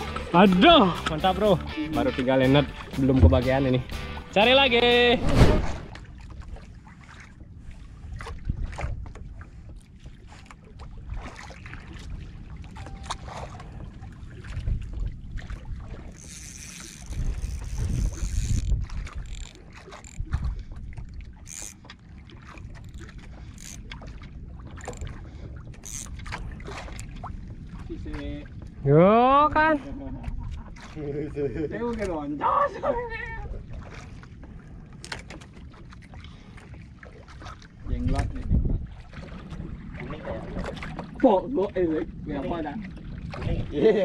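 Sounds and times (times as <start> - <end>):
water noise: 0.0 - 44.0
wind on microphone: 12.2 - 16.1, 16.8 - 21.3, 37.8 - 43.8.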